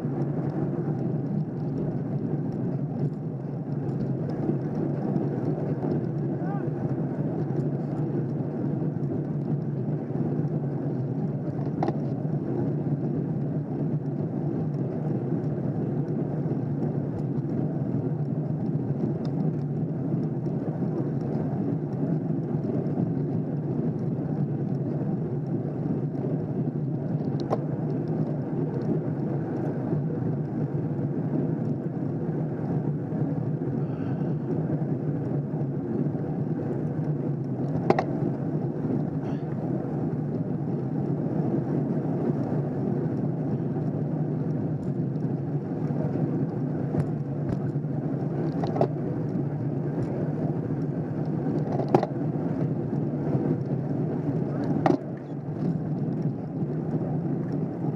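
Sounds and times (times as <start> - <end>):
bicycles rolling on asphalt: 0.0 - 57.9.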